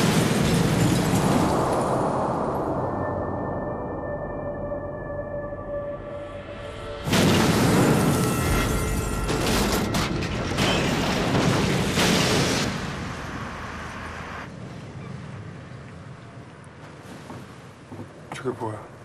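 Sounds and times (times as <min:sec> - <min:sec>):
explosion blast: 0:06.8 - 0:13.9
explosion rumble: 0:06.9 - 0:14.3
booms: 0:07.0 - 0:13.8.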